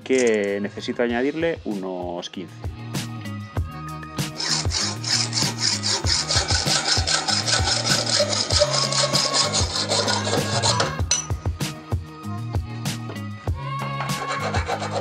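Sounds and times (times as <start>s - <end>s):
hacksaw cutting steel: 4.4s - 11.3s, 14.0s - 15.0s.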